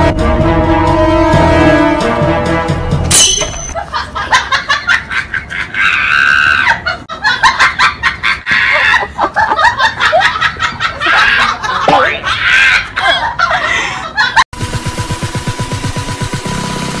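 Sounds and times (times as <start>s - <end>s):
shrill screeching cry: 5.8s - 6.8s.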